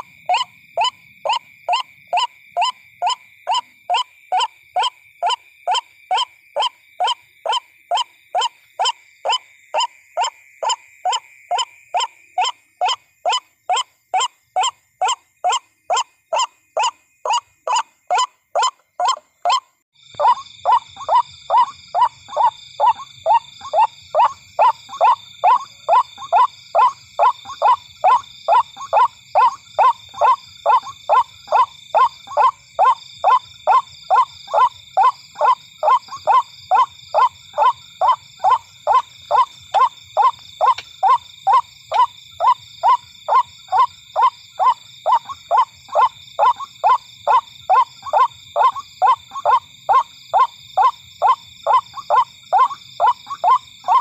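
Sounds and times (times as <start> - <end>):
waterhen calling: 20.2 - 54.0.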